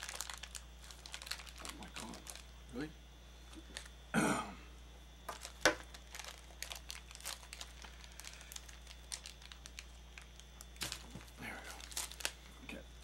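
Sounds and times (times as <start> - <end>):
toy packaging crinkling: 0.0 - 2.5, 5.3 - 12.4.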